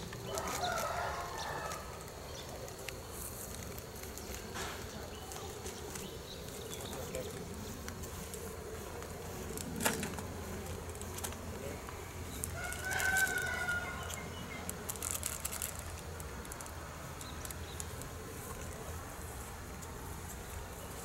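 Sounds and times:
rooster crowing: 0:00.2 - 0:02.3, 0:12.5 - 0:14.6.

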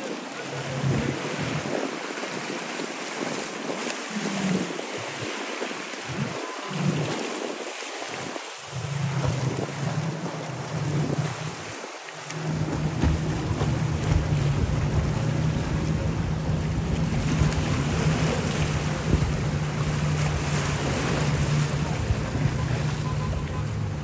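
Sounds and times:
powerboat engines droning: 0:00.0 - 0:05.2, 0:08.4 - 0:24.0
wind buffeting microphone: 0:00.0 - 0:11.8, 0:12.4 - 0:24.0
rushing water: 0:00.0 - 0:24.0.

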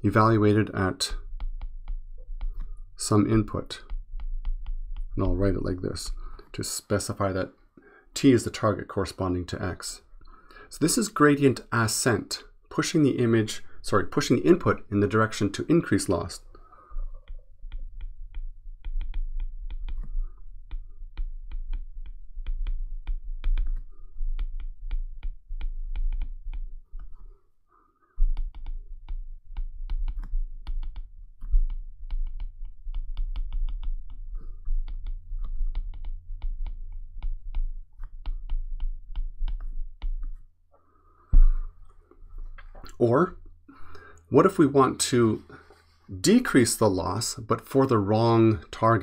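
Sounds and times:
stylus tapping on glass screen: 0:01.2 - 0:02.8, 0:03.8 - 0:05.2, 0:17.0 - 0:27.2, 0:28.2 - 0:40.4.

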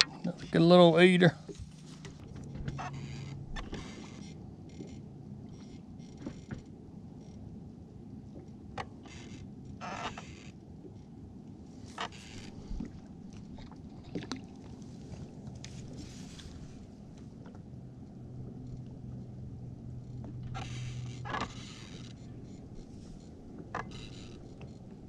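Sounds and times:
boat low rumble: 0:00.0 - 0:25.0
steady low hum: 0:00.0 - 0:25.0.

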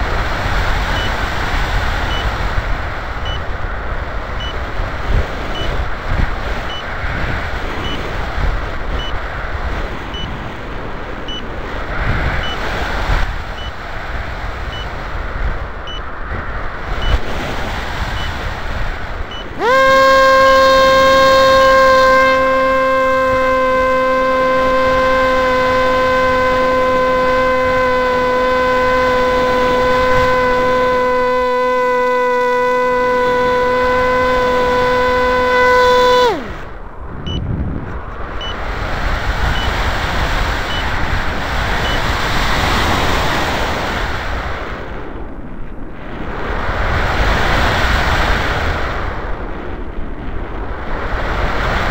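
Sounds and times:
loud steady whine: 0:19.3 - 0:37.4.

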